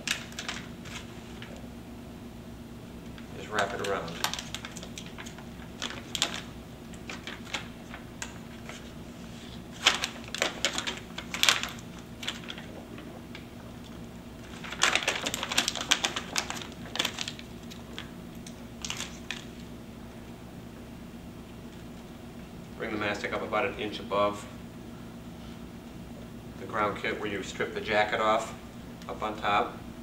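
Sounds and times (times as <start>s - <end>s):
tape peeling and crackling: 3.5s - 19.7s.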